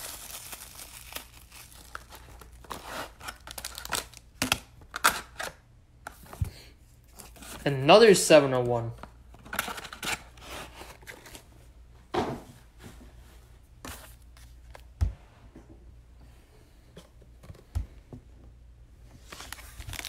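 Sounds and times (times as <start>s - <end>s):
cards rustling: 19.2s - 20.0s.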